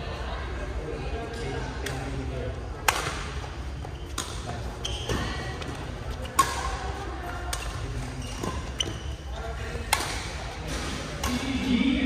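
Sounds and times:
indistinct voices: 9.5 - 12.0.

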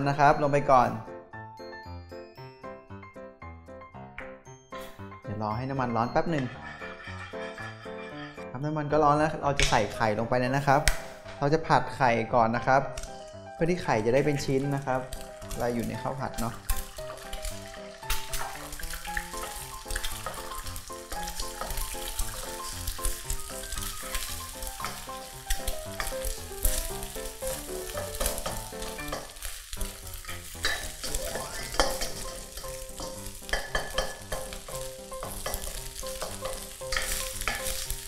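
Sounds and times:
egg sizzling in oil: 6.2 - 8.4, 14.2 - 38.0
spatula scraping a pan: 6.2 - 8.6, 17.2 - 38.0.

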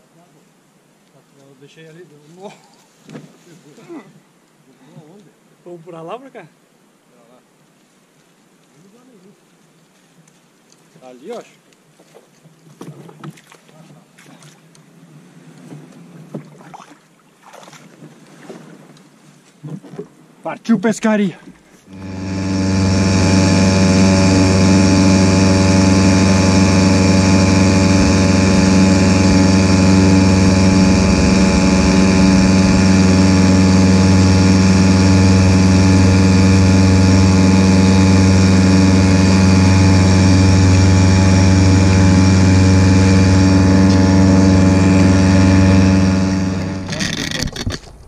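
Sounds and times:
small outboard motor running: 21.8 - 48.0.

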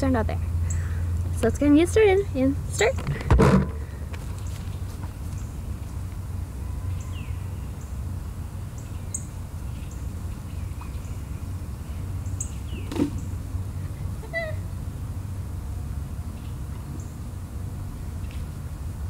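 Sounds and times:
steady low rumble: 0.0 - 19.0
sharp thump: 3.0 - 3.8.

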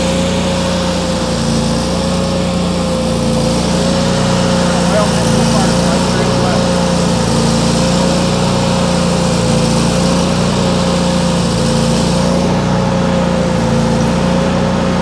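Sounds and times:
welder generator engine droning: 0.0 - 15.0.

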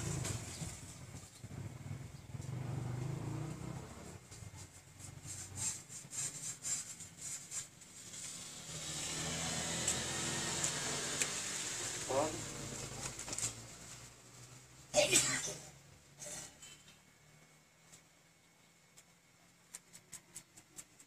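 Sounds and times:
plastic sheet rubbing wet paint: 4.2 - 9.2, 19.7 - 21.0
quick brushing strokes: 4.3 - 8.4.

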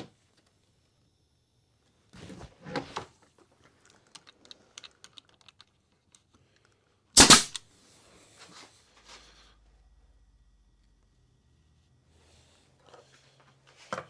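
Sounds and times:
pneumatic nailer shot: 7.2 - 7.6.

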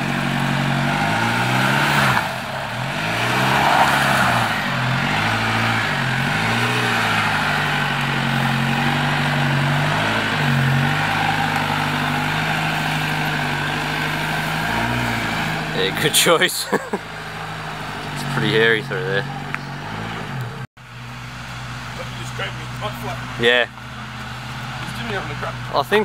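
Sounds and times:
vehicle engine revving: 0.0 - 26.0.

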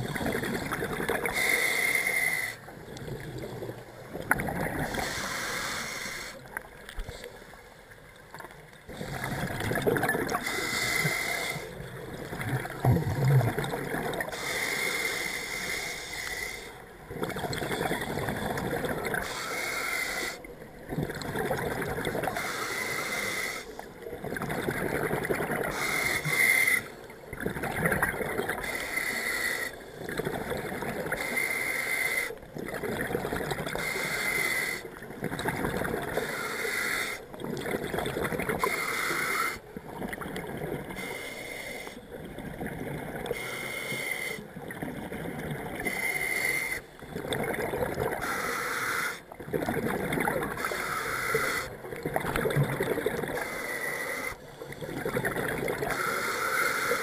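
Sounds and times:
regulator inhale hiss: 1.3 - 2.7, 4.9 - 7.5, 10.4 - 11.8, 14.3 - 16.8, 19.2 - 20.5, 22.3 - 23.9, 25.7 - 27.1, 28.6 - 30.1, 31.2 - 32.4, 33.7 - 34.9, 36.2 - 37.3, 38.6 - 39.6, 40.9 - 42.2, 43.2 - 44.5, 45.8 - 47.0, 48.2 - 49.3, 50.6 - 51.8, 53.3 - 55.0, 55.9 - 57.0
exhaled bubbles rushing: 11.9 - 14.3, 51.8 - 53.4.

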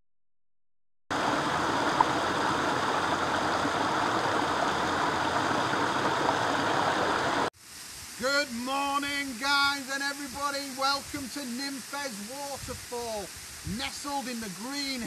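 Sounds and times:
waterfall rushing: 1.1 - 15.0
man talking: 8.2 - 15.0.

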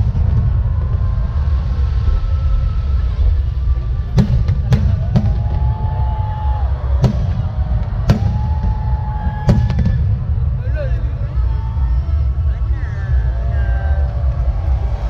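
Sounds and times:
constant low rumble: 0.0 - 15.0.

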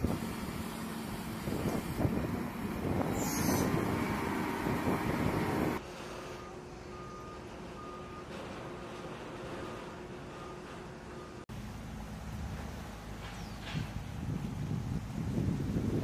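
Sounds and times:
loud rushing outdoor noise: 0.0 - 6.0
reversing alarm beeping: 6.2 - 8.4, 10.3 - 11.4.

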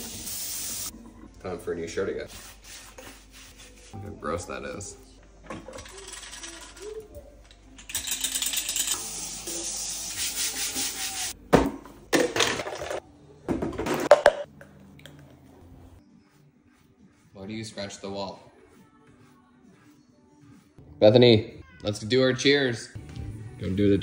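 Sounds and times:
kitchen tap running: 0.0 - 0.9
brush scrubbing baking tray: 16.1 - 20.8.

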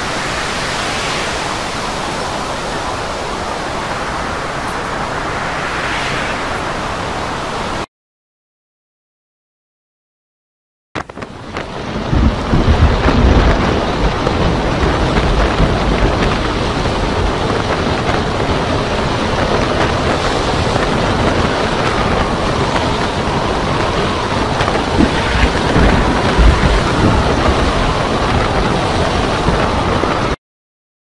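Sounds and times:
heavy surf breaking: 0.0 - 7.9, 11.0 - 30.4
wind buffeting microphone: 11.0 - 30.4.

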